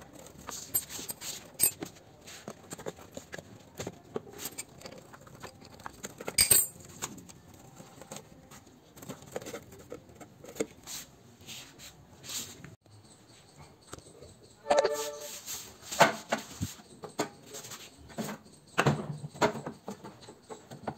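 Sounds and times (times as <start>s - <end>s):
hand tool clicks and scrapes: 4.1s - 7.1s.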